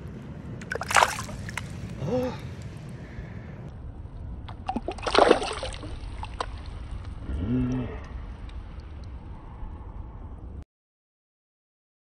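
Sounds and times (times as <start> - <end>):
stream running: 0.6 - 1.9
water splashing: 0.6 - 1.9, 4.5 - 7.1.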